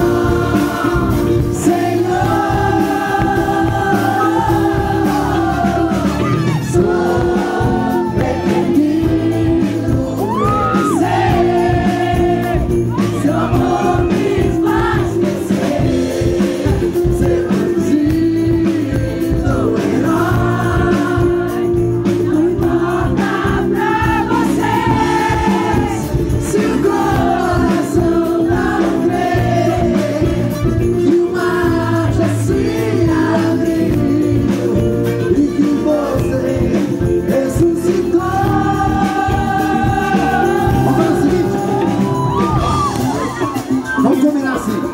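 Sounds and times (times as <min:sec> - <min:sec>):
pop band playing live: 0:00.0 - 0:44.9
man singing into a microphone: 0:07.9 - 0:11.1, 0:16.8 - 0:21.4, 0:29.8 - 0:39.0.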